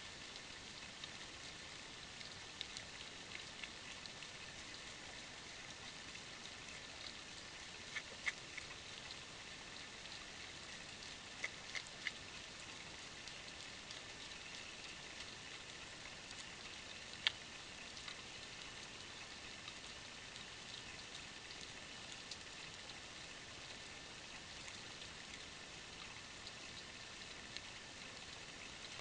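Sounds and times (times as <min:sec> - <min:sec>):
deer licking clicks: 0:07.9 - 0:08.8, 0:11.3 - 0:12.2.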